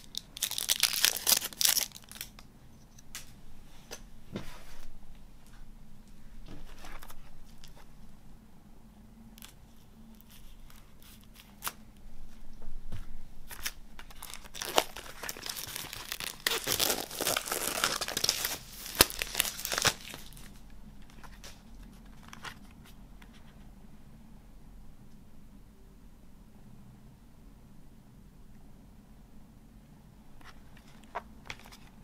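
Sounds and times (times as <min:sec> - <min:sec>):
plastic wrap crinkling and tearing: 0:00.0 - 0:02.4, 0:13.5 - 0:20.6.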